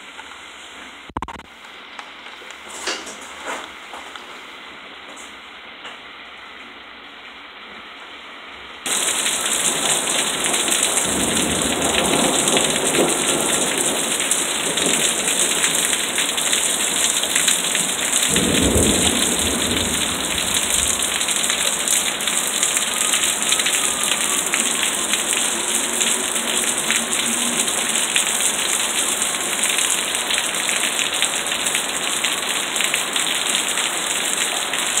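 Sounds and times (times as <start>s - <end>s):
heavy rain on concrete: 8.8s - 35.0s
thunder rumbling: 8.9s - 29.4s.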